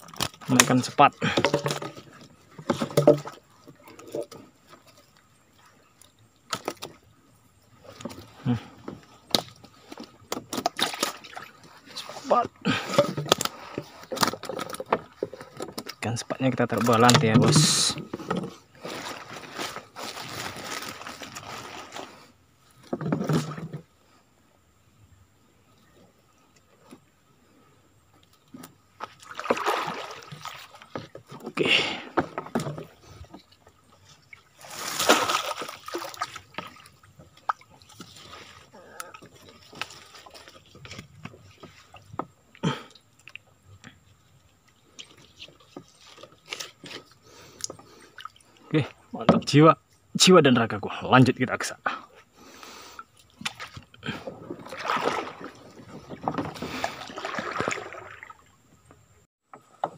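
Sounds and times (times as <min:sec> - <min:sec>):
water splashing and dripping: 0:00.0 - 0:21.5, 0:28.9 - 0:42.3, 0:53.2 - 0:58.6.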